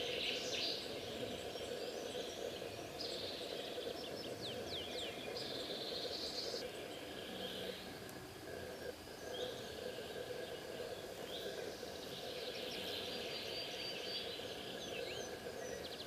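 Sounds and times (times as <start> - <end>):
faint steady hum: 0.0 - 16.0
small birds chirping: 0.0 - 16.0.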